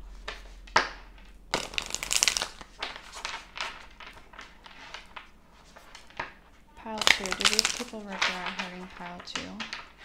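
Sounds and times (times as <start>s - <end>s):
cards sliding: 0.2s - 9.0s
cards riffling: 0.2s - 10.0s.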